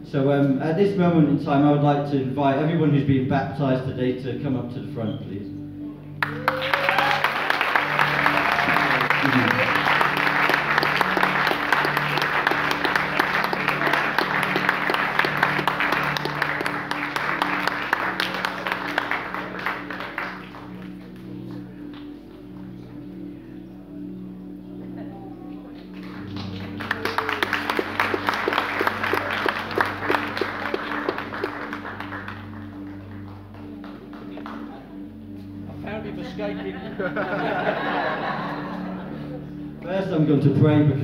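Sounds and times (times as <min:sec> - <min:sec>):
keyboard sustained chords: 0:00.0 - 0:41.0
congregation applauding: 0:06.2 - 0:23.1, 0:25.6 - 0:35.1.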